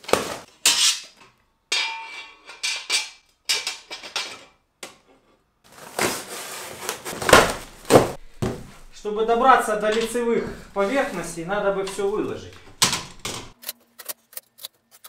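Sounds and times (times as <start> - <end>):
cardboard rustling: 5.7 - 13.6
metal parts clanking: 11.8 - 14.4.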